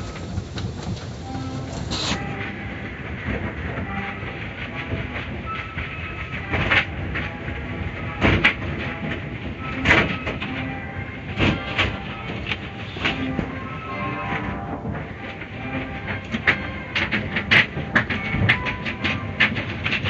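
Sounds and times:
car wash brushes slapping car: 0:00.0 - 0:02.5.

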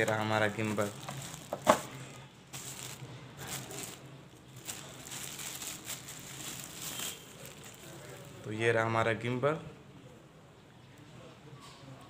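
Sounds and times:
plastic wrap crinkling: 0:00.0 - 0:08.6.

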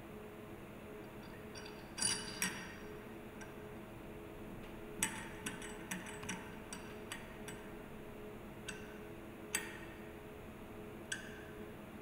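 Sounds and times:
faint steady hum: 0:00.0 - 0:12.0
metal parts clicking together: 0:01.2 - 0:02.9, 0:05.0 - 0:07.6.

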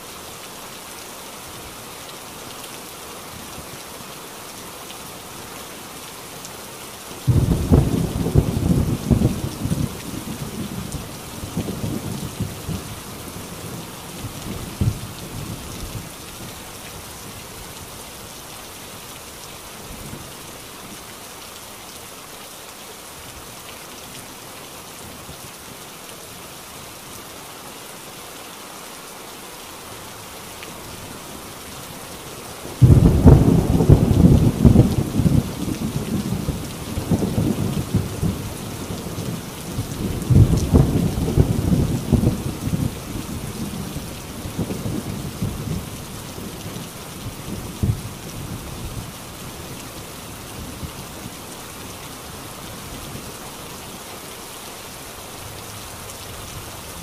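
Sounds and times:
heavy rain on a tin roof: 0:00.0 - 0:57.0
thunder crack and rumble: 0:07.3 - 0:10.0, 0:32.8 - 0:35.6, 0:40.2 - 0:42.9.

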